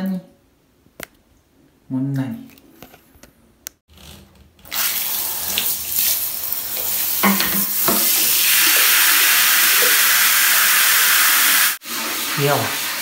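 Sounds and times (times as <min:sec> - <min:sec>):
shower water spraying on bathtub: 0:04.7 - 0:13.0.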